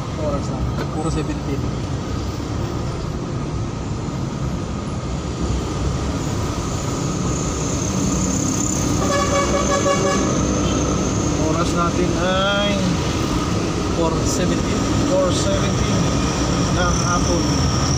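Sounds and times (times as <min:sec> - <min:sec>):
engine and tyre rumble: 0:00.0 - 0:17.9
vehicle horn: 0:08.9 - 0:10.8.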